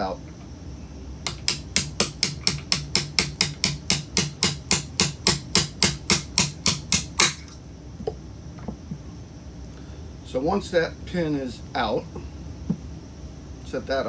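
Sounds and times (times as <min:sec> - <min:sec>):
small hammer tapping a punch: 0:01.2 - 0:07.4.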